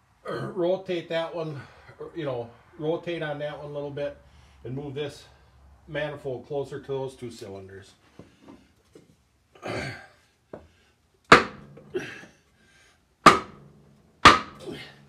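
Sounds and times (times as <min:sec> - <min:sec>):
hammer knocks on wooden block: 0:11.3 - 0:11.7, 0:13.3 - 0:13.6, 0:14.2 - 0:14.6.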